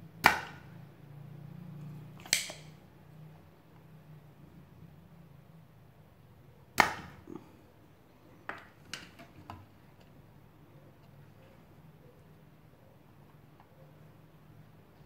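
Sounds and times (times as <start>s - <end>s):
light tool clicks: 2.2s - 2.8s.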